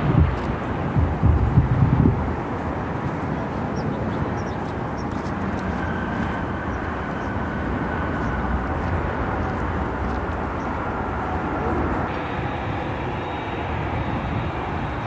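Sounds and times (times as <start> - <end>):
jet engines rumbling: 0.0 - 15.0
faint high whine: 3.7 - 15.0.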